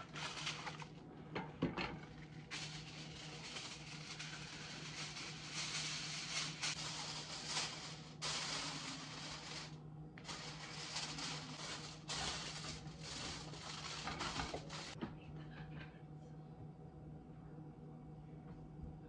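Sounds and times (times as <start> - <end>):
aluminum foil crinkling: 0.0 - 1.0, 1.9 - 15.0.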